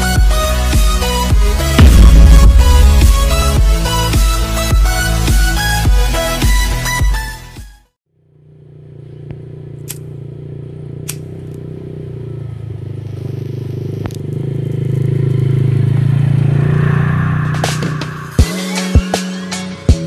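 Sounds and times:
music: 0:00.0 - 0:08.0, 0:17.5 - 0:20.0
quad bike engine: 0:08.1 - 0:18.0.

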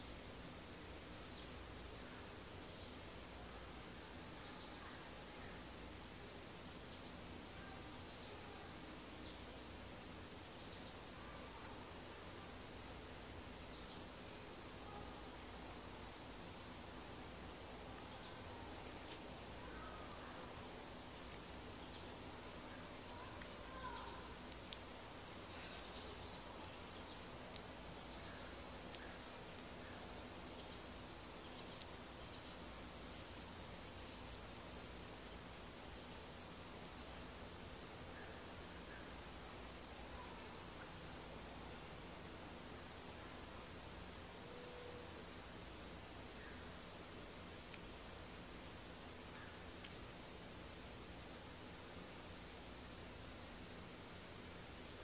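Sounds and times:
nestlings cheeping: 0:17.1 - 0:42.8, 0:43.4 - 0:55.0.

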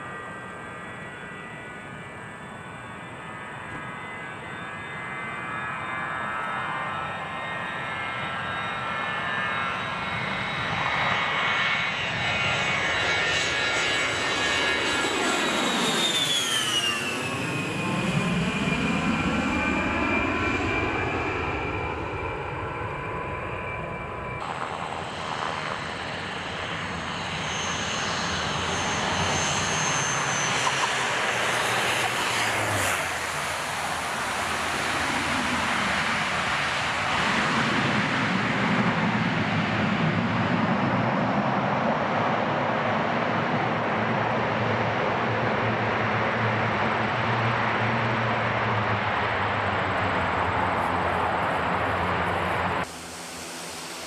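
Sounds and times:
jet flying low past: 0:00.0 - 0:54.0
steady engine noise: 0:24.4 - 0:39.8, 0:46.4 - 0:54.0.

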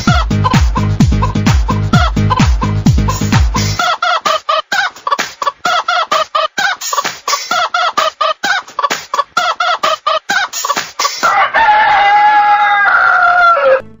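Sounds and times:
chicken clucking: 0:00.0 - 0:13.8
chicken long held call: 0:11.2 - 0:13.9.

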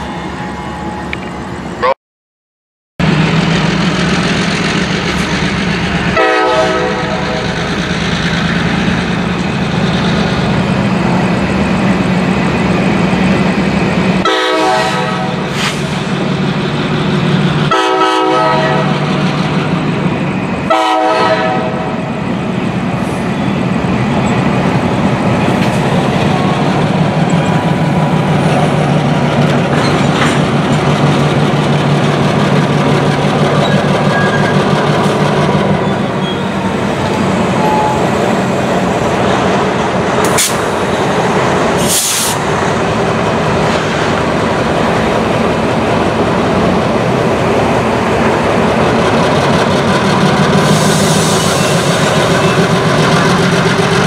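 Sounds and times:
diesel locomotive engine drone: 0:00.0 - 0:02.0, 0:03.0 - 0:54.0
locomotive horn blasts: 0:06.2 - 0:07.5, 0:14.2 - 0:15.5, 0:17.7 - 0:19.0, 0:20.7 - 0:22.0.

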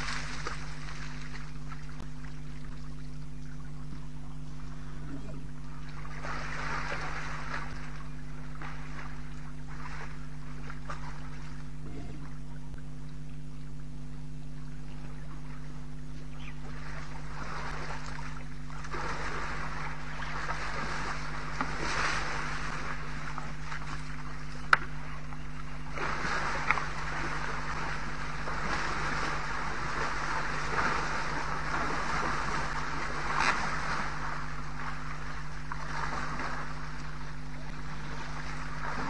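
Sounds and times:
steady electrical hum: 0:00.0 - 0:39.0.

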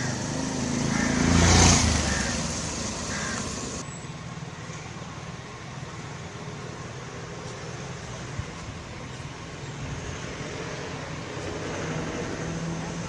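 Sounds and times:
motor scooter driving past: 0:00.0 - 0:03.8
steady outdoor hum: 0:00.0 - 0:13.0.

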